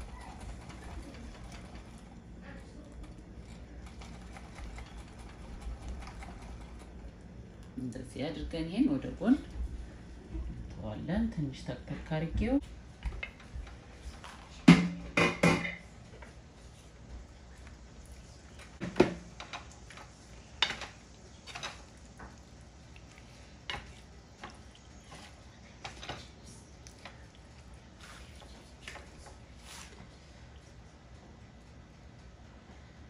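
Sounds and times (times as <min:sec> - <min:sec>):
wooden spoon scraping a pan: 0:23.5 - 0:26.3.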